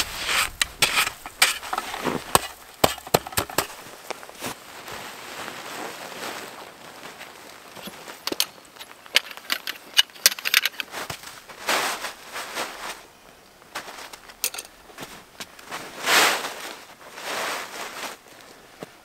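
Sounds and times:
metal tent stakes clinking: 0.0 - 3.8, 7.8 - 11.0, 14.1 - 14.8
crunches in snow: 0.0 - 8.2, 10.9 - 14.2, 14.8 - 19.0.

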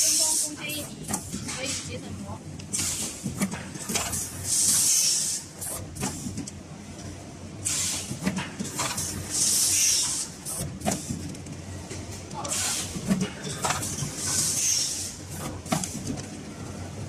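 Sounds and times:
air hissing bursts: 4.2 - 6.3, 7.6 - 8.1, 9.0 - 10.6, 14.2 - 15.2.

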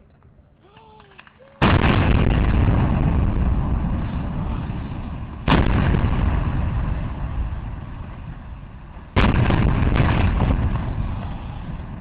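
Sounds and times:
explosive blast: 1.6 - 12.0.

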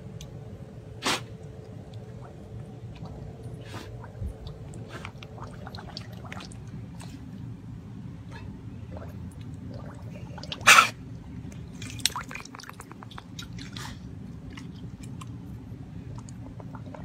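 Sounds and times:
puppy blowing bubbles in water: 1.0 - 7.3
water splashing and dripping: 1.4 - 7.1, 11.4 - 15.5.

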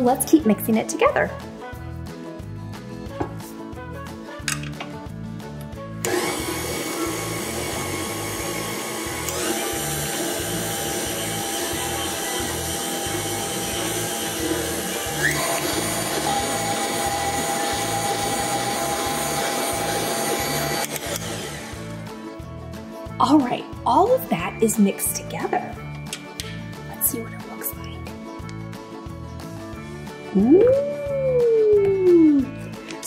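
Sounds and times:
background music with beat: 1.2 - 7.4, 21.6 - 33.0
stand mixer churning dough: 6.1 - 21.8.

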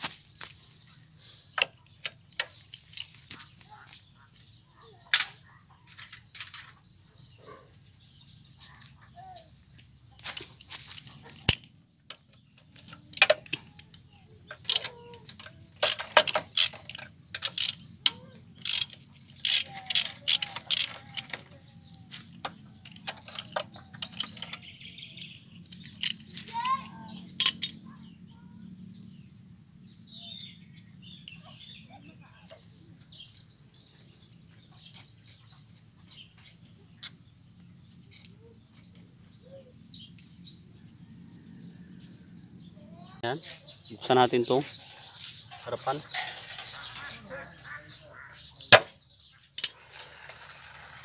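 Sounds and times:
hand tools clinking on metal: 14.5 - 21.6, 44.6 - 47.8.

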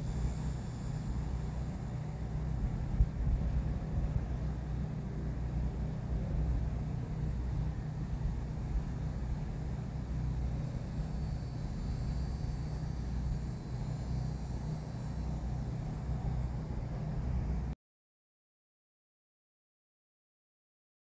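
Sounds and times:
faint high whine: 0.0 - 17.8.

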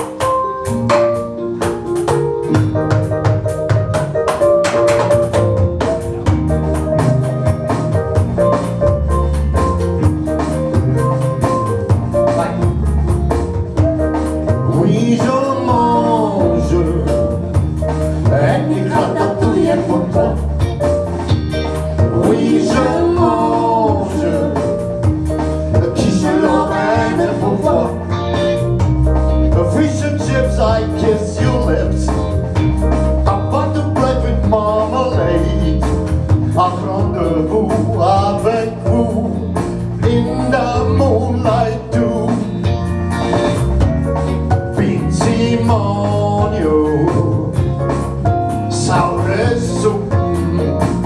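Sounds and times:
bass line: 0.0 - 51.0
drums: 0.0 - 51.0
guitar: 0.0 - 51.0
person singing: 14.1 - 17.6
man singing: 14.5 - 20.4, 22.1 - 24.9, 25.8 - 28.6, 29.5 - 32.4, 33.2 - 42.7, 44.6 - 47.9, 48.6 - 51.0.

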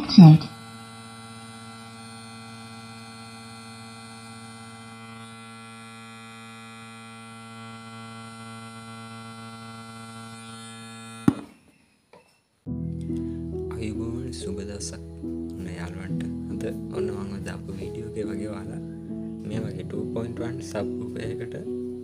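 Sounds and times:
sharp pop: 11.2 - 11.6.

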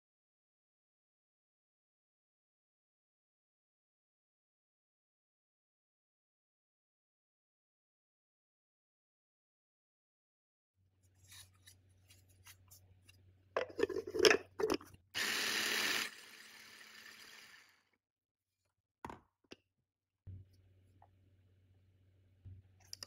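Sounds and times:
food processor motor grinding: 15.2 - 17.9.

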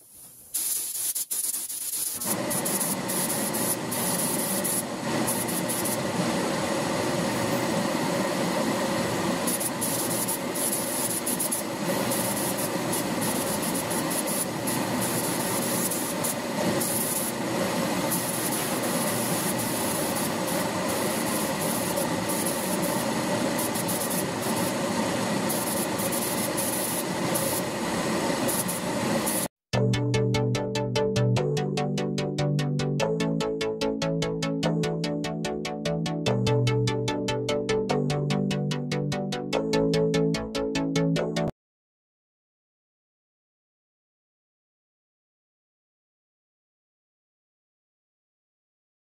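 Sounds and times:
spray gun hissing in bursts: 0.0 - 29.5
steady machine hum: 2.2 - 29.5.

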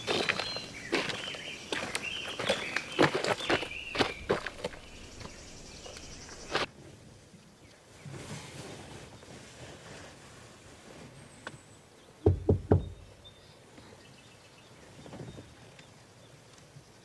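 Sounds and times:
knuckles knocking on car window: 12.3 - 13.0.

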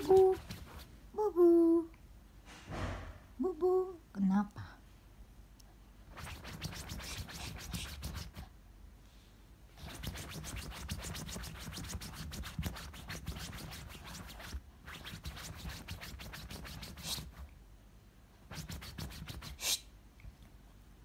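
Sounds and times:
dog claws scratching fabric: 0.0 - 0.9, 6.1 - 8.5, 9.8 - 17.5, 18.5 - 19.7.

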